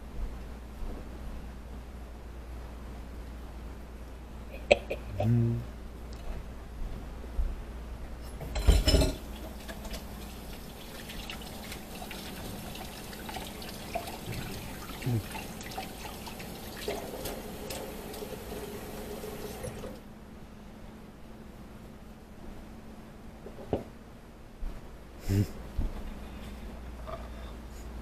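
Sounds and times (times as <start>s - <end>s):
tap water running into sink: 9.1s - 20.0s.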